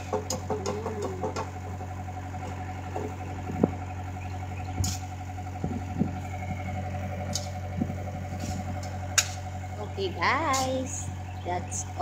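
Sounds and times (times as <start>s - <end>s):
diesel engine idling: 0.0s - 12.0s
hand tool striking dirt: 8.4s - 9.4s.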